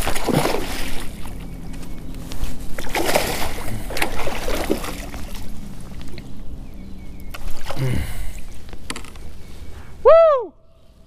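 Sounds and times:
fish splashing at water surface: 0:00.0 - 0:01.4, 0:02.8 - 0:06.2.

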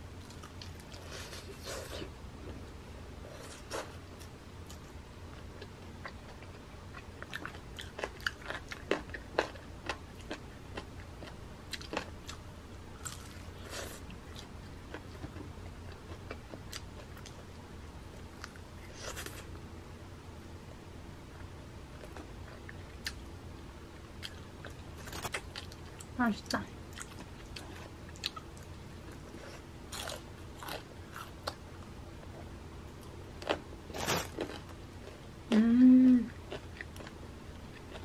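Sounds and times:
chewing crispy fried chicken: 0:00.2 - 0:17.4, 0:24.0 - 0:32.3, 0:36.2 - 0:38.0.

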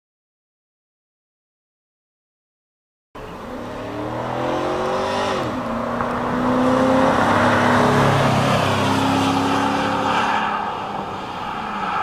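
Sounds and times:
pickup engine accelerating hard: 0:03.2 - 0:12.0.

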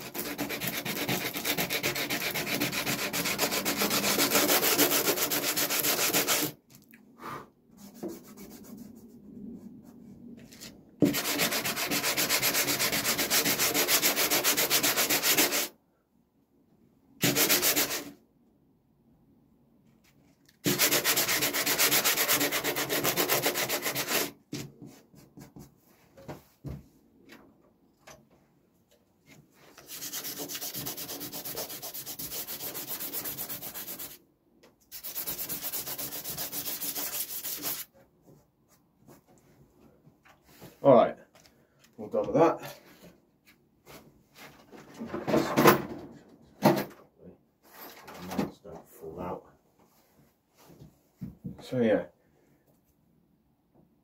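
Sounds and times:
scratchy sanding: 0:00.0 - 0:06.6, 0:11.0 - 0:15.7, 0:17.2 - 0:18.1, 0:20.6 - 0:24.4, 0:29.7 - 0:34.2, 0:34.9 - 0:37.9.

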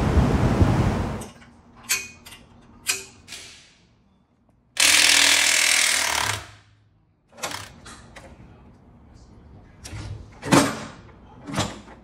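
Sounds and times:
power wrench running: 0:04.8 - 0:06.6.

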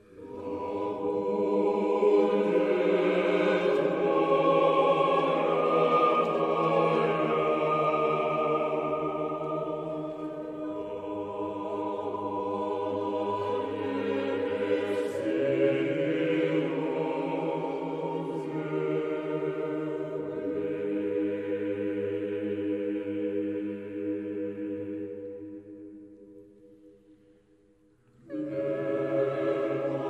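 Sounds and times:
choir singing slow chords: 0:00.0 - 0:30.0.

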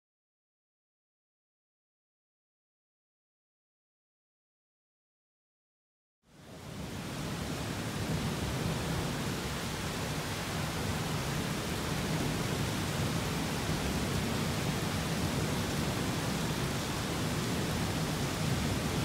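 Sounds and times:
heavy rain hissing: 0:06.4 - 0:19.0.

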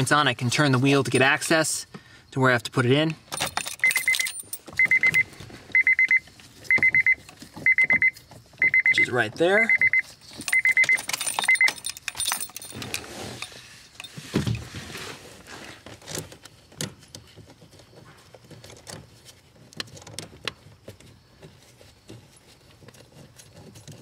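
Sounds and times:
short electronic beep: 0:03.8 - 0:05.2, 0:05.8 - 0:11.7.

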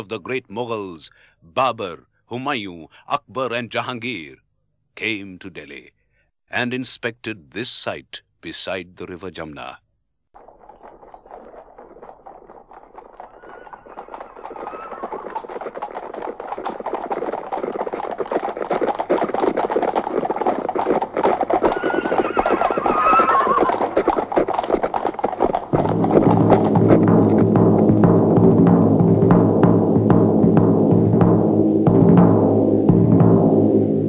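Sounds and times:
horses hoofbeats: 0:10.4 - 0:33.8
horse neighing: 0:11.0 - 0:15.8, 0:21.5 - 0:24.7
drum-led music: 0:25.7 - 0:34.0.

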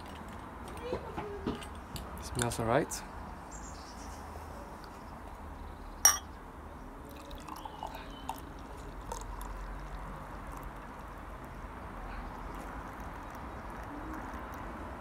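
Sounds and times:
glass clink: 0:06.0 - 0:06.3
beer pouring into glass: 0:07.1 - 0:11.2.

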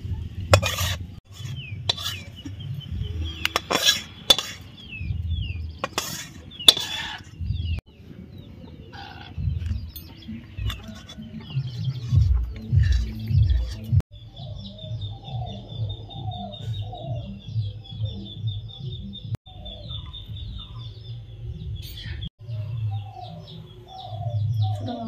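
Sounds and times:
birds chirping: 0:00.0 - 0:25.0
metal spatula scraping a wok: 0:00.5 - 0:02.6, 0:03.3 - 0:04.9, 0:05.7 - 0:07.4, 0:10.6 - 0:14.0.

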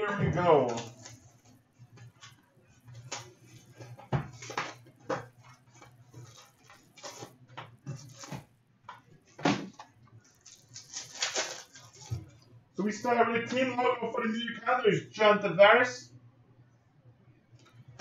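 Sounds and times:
box unwrapping and handling: 0:10.4 - 0:12.2.

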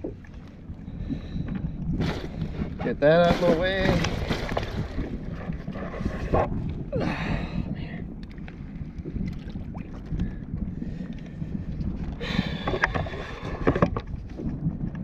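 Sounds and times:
water moving around kayak: 0:00.0 - 0:15.0
wind on microphone: 0:00.0 - 0:15.0.

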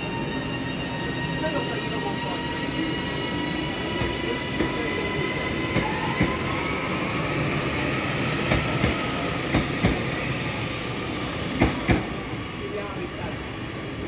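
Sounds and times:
electric train whine: 0:00.0 - 0:14.0
rumble of train wheels: 0:00.0 - 0:14.0.

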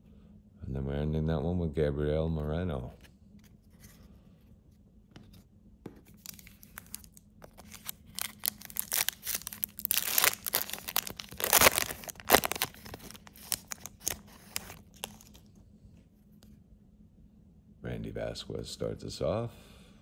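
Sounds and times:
foil wrapper tearing and crinkling: 0:06.1 - 0:15.5.

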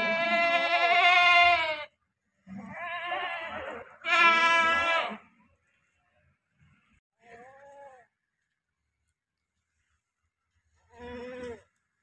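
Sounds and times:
goats bleating: 0:00.0 - 0:01.9, 0:02.6 - 0:05.2.

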